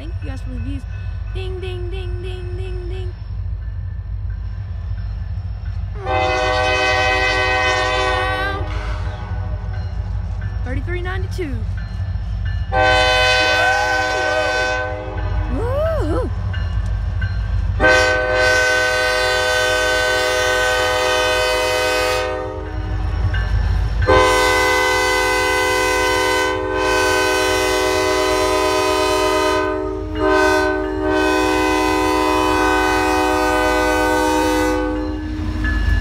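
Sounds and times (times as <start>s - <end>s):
train rumbling: 0.0s - 36.0s
locomotive air horn blasts: 6.0s - 9.6s, 12.7s - 15.4s, 17.8s - 22.8s, 24.1s - 35.6s.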